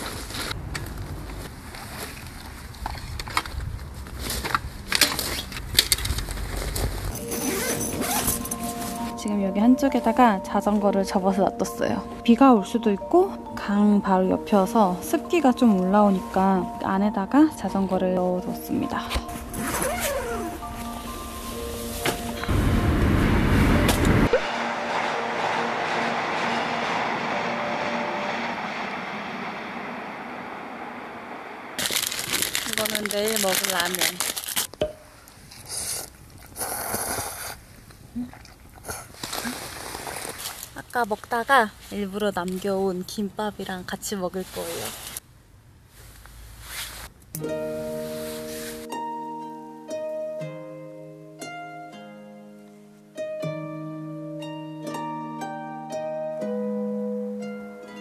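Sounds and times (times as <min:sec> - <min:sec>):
crinkling and rustling: 0:00.0 - 0:09.2, 0:31.8 - 0:35.6, 0:38.6 - 0:42.9
low rumble: 0:00.2 - 0:04.1, 0:20.5 - 0:33.4
background music: 0:07.2 - 0:29.4, 0:47.4 - 0:58.0
steady rushing noise: 0:20.7 - 0:32.4.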